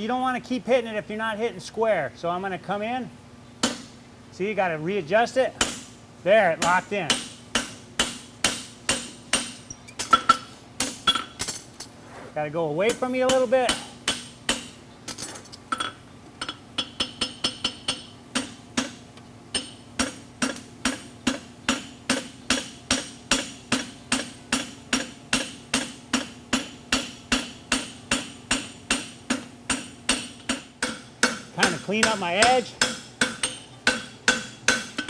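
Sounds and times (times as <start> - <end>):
hammer striking horseshoe on anvil: 5.6 - 5.9, 6.6 - 11.5, 12.9 - 14.8, 15.7 - 35.0.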